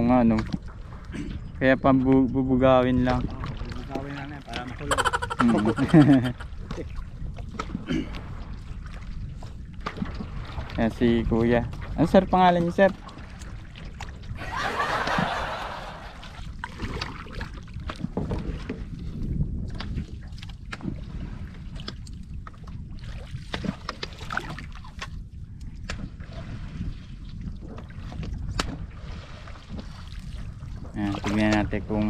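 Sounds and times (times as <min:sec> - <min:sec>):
water lapping against boats: 0:00.0 - 0:32.0
wind rumbling on microphone: 0:00.0 - 0:32.0
small clicks and splashes: 0:02.0 - 0:04.8, 0:06.6 - 0:14.3, 0:16.6 - 0:18.8, 0:19.6 - 0:21.0, 0:21.7 - 0:26.2, 0:27.6 - 0:28.9.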